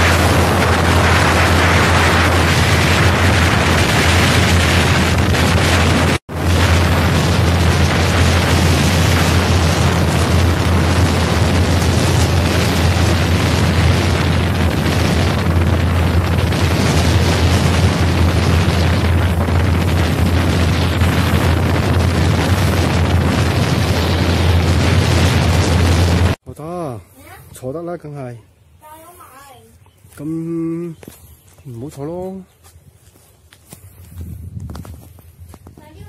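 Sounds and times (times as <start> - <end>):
wind buffeting microphone: 0.0 - 26.4, 33.6 - 36.0.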